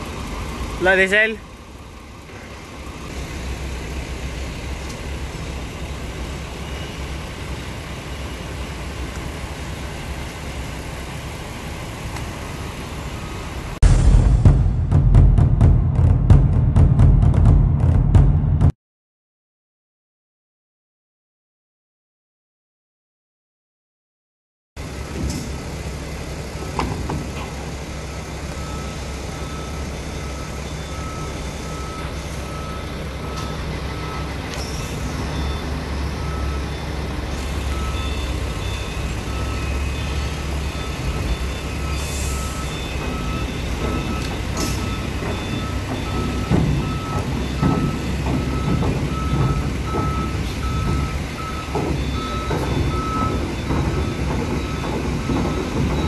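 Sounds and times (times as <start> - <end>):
excavator engine running: 24.8 - 56.0
tracks clanking on steel: 24.9 - 56.0
electronic beeping alarm: 28.6 - 56.0.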